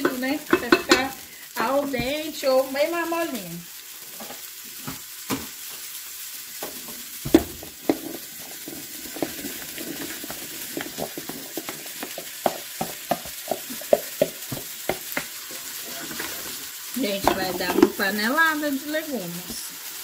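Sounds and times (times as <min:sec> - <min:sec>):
food pieces falling in pot: 0:00.0 - 0:01.2, 0:04.2 - 0:05.9, 0:06.6 - 0:18.1
meat and vegetables sizzling: 0:00.0 - 0:20.0.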